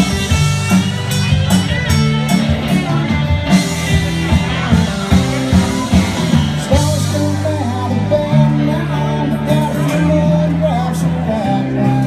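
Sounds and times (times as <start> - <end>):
steady drum beat: 0.0 - 8.5
live rock band playing: 0.0 - 12.0.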